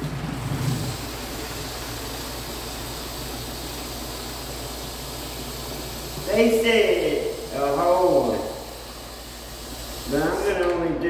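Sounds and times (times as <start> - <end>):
water from hose filling plastic jug: 0.0 - 10.4.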